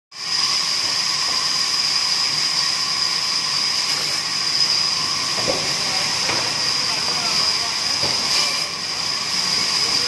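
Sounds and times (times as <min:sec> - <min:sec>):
band saw cutting wood: 0:02.7 - 0:10.0.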